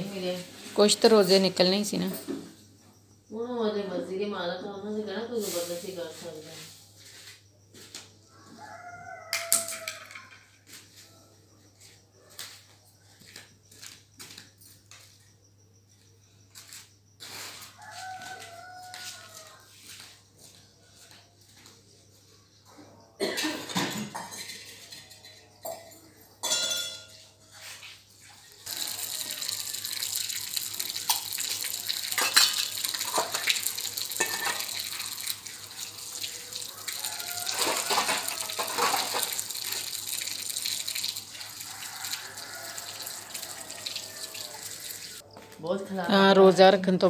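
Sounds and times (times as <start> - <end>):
metal dishes clinking: 23.3 - 27.4, 32.1 - 33.5, 34.1 - 34.8, 37.3 - 39.4
water running and splashing: 28.4 - 45.2.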